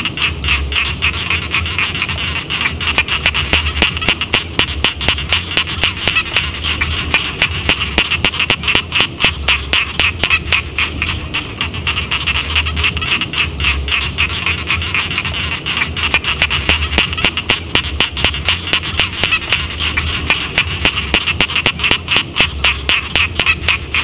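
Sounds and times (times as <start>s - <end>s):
frogs croaking in chorus: 0.0s - 24.0s.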